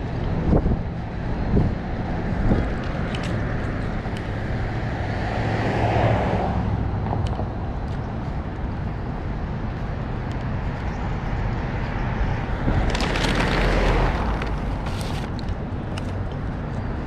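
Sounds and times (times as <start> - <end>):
road traffic passing: 0.0 - 17.0
wind on microphone: 0.0 - 17.0.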